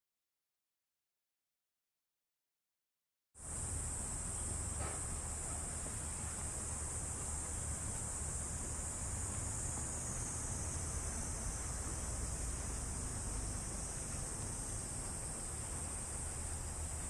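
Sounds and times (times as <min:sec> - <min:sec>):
low steady rumble: 0:03.4 - 0:17.0
shrill insect chorus: 0:03.4 - 0:17.0.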